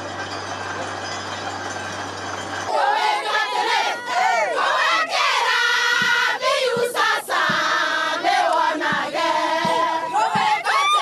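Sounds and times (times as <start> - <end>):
women singing in chorus: 2.7 - 11.0
rhythmic handclapping: 4.8 - 11.0.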